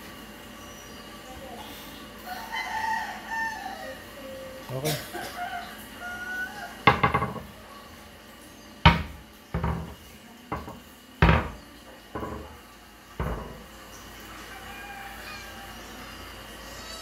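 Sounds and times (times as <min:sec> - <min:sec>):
wooden cabinet doors knocking shut: 0:06.9 - 0:07.5, 0:08.9 - 0:12.6, 0:13.2 - 0:13.7.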